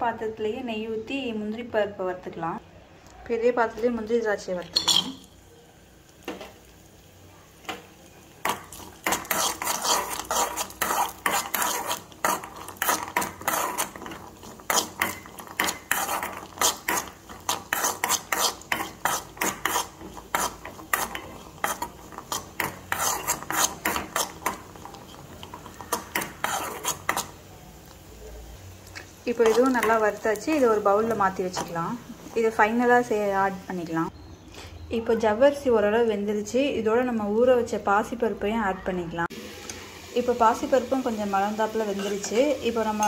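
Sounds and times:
nuts frying in fat: 3.7s - 35.7s, 39.3s - 43.0s
metal spoon scraping metal pan: 4.7s - 5.3s, 8.4s - 27.4s, 29.3s - 32.5s, 41.8s - 43.0s.

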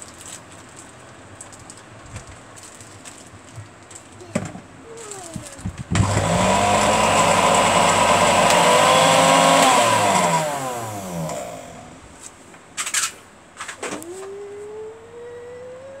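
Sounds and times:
blender motor whining: 5.9s - 12.0s.

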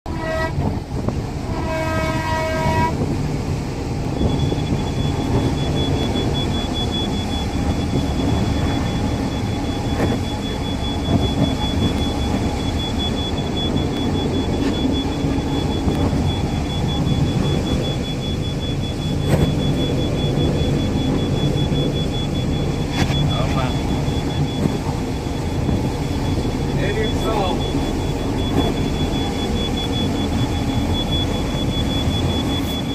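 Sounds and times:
train horn: 0.1s - 0.7s, 1.4s - 3.1s
train engine and wheels rumbling: 0.1s - 32.9s
high-pitched tone: 4.2s - 32.9s.

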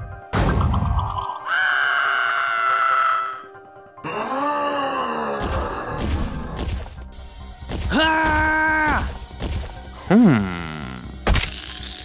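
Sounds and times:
voice-like cry rising and falling: 1.4s - 6.0s.

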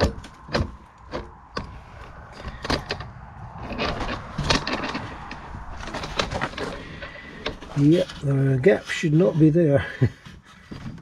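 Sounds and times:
handling clicks and knocks: 0.0s - 8.4s
low rumble: 0.2s - 7.8s.

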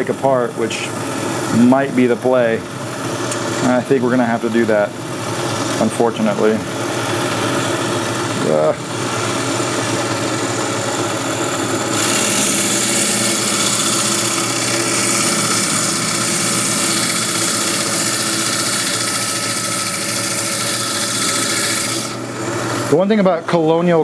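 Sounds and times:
motor hum: 0.0s - 24.0s
band saw cutting hiss: 11.9s - 22.2s.

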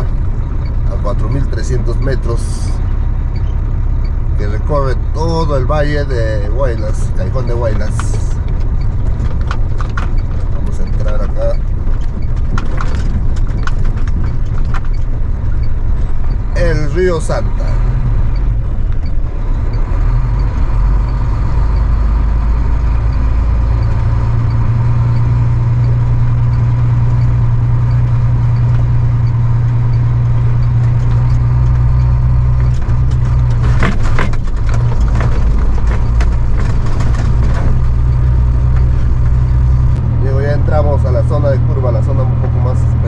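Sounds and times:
truck engine droning: 0.0s - 43.0s
knocks and rattles: 7.6s - 16.5s, 26.6s - 40.0s.

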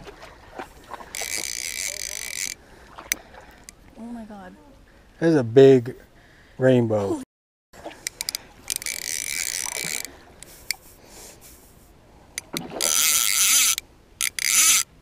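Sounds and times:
fishing reel buzzing: 1.1s - 2.6s, 8.0s - 10.9s, 12.4s - 14.9s
sharp ticks: 8.0s - 10.8s, 12.4s - 14.9s.

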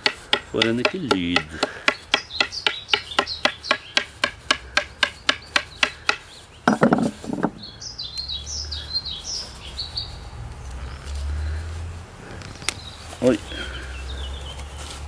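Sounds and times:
knife handle tapping on bark: 0.0s - 7.6s
small bird chirping: 1.9s - 4.1s, 4.9s - 11.1s.

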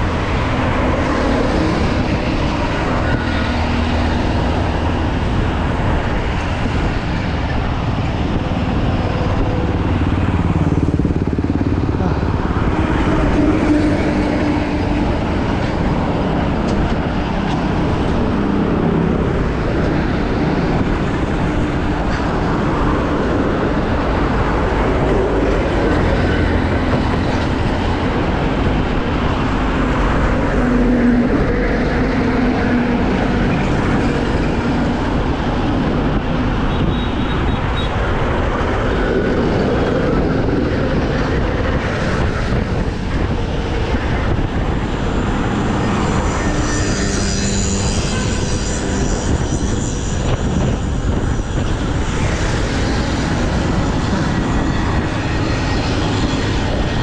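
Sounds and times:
vehicle engines running: 0.0s - 57.0s
wind and road noise: 0.0s - 57.0s.

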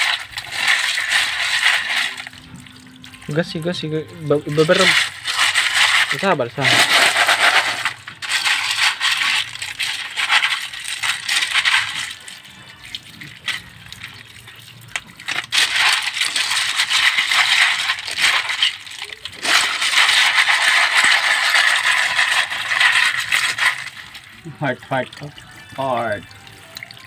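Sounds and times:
shells clattering in a colander: 0.0s - 2.4s, 4.4s - 12.4s, 15.2s - 24.3s
running water: 0.0s - 27.0s.

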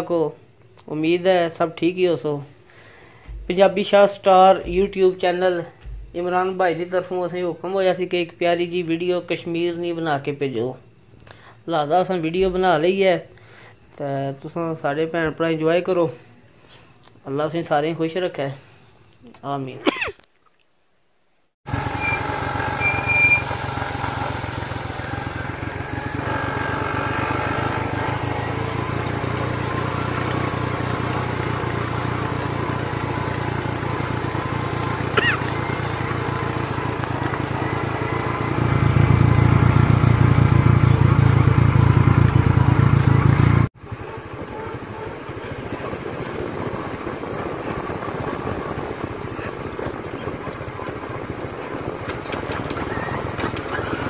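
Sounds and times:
vehicle engine running: 2.9s - 6.5s, 12.4s - 12.9s, 21.7s - 54.0s.

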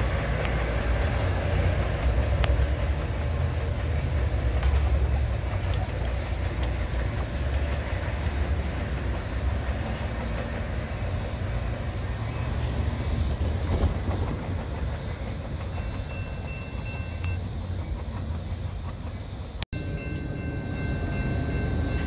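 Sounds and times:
train rumbling on tracks: 0.0s - 22.0s
faint high steady tone: 15.7s - 17.7s, 19.8s - 22.0s.

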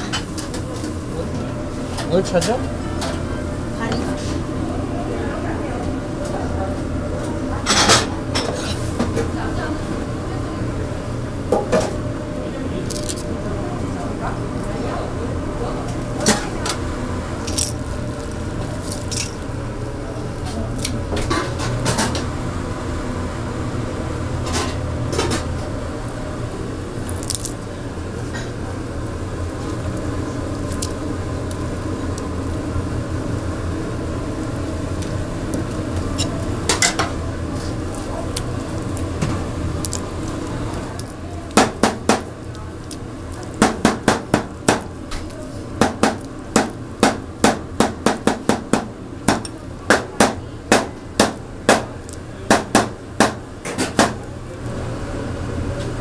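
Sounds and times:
kitchen hum: 0.0s - 56.0s
knife chopping on cutting board: 41.6s - 42.3s, 52.5s - 54.2s.

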